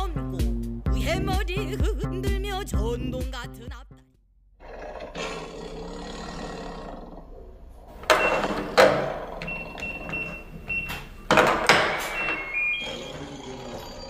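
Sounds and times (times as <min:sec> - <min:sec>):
music: 0:00.0 - 0:04.2
clacks at front door: 0:08.0 - 0:12.6
door lock clatter: 0:08.0 - 0:12.8
keypad beeps: 0:08.1 - 0:13.2.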